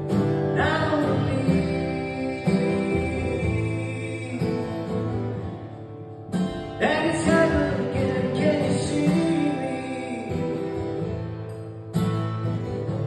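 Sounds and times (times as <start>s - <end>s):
man singing: 0.0s - 5.5s, 6.5s - 11.1s
acoustic guitar strumming: 0.0s - 13.0s.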